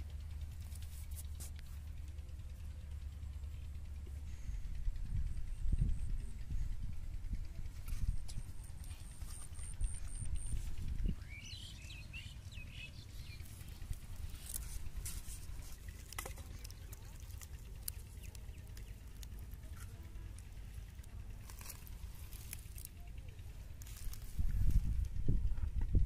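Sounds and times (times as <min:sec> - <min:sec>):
low rumble: 0:00.0 - 0:26.0
plastic bottles clicking and rustling: 0:14.5 - 0:18.2.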